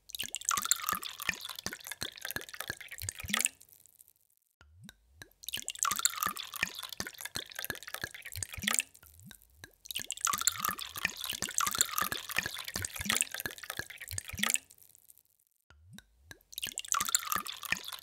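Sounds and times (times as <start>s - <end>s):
water dripping: 0.0s - 18.0s
water pouring into a glass: 0.1s - 3.8s, 5.2s - 9.0s, 9.8s - 14.9s, 16.5s - 18.0s.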